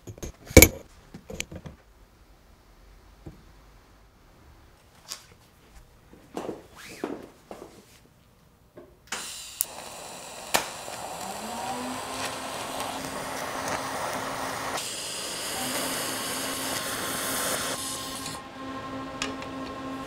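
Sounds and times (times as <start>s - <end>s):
welding arc hissing: 9.1s - 18.4s.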